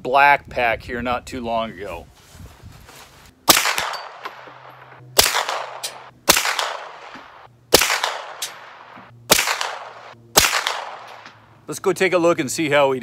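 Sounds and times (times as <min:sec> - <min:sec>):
suppressed gunshots with echo: 0:03.5 - 0:11.5.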